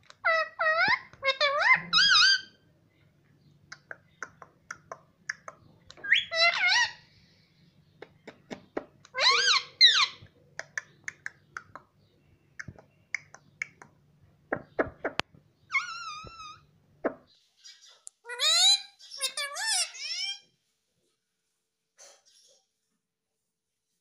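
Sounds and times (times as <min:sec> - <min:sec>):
parakeet warbling calls: 0:00.2 - 0:02.6, 0:06.0 - 0:07.0, 0:09.1 - 0:10.2, 0:15.7 - 0:16.7, 0:18.3 - 0:20.4
sharp bird clicks: 0:03.7 - 0:06.0, 0:10.6 - 0:15.3.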